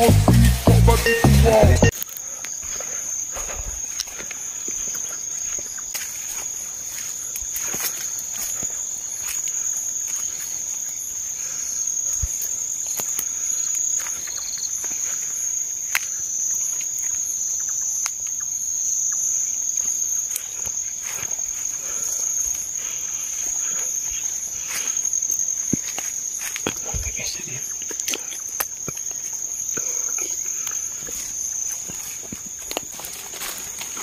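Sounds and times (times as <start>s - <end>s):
crickets trilling: 0.0s - 34.0s.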